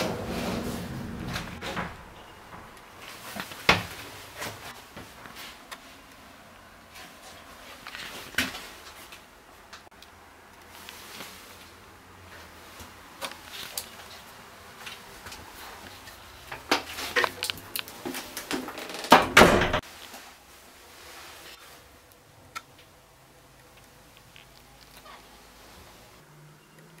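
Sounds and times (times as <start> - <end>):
scraping rush: 0.0 - 2.7.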